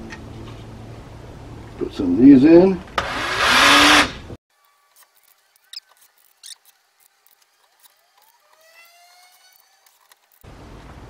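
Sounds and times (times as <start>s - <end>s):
cordless drill driving screw: 3.0s - 4.2s.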